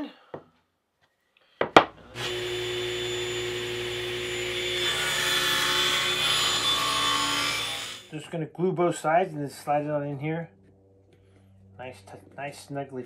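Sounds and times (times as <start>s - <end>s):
table saw running: 2.0s - 8.1s
saw blade cutting wood: 2.2s - 8.1s.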